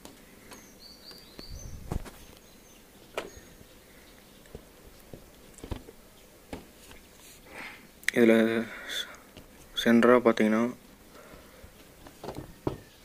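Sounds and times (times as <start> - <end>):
motorcycle seat clicks and knocks: 5.6 - 5.9, 12.1 - 12.9.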